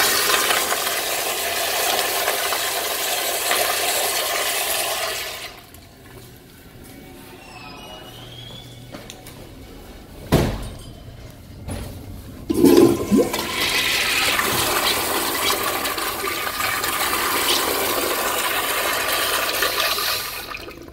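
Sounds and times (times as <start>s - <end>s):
toilet flushing: 0.0s - 5.7s, 12.5s - 20.9s
thump: 10.3s - 10.7s.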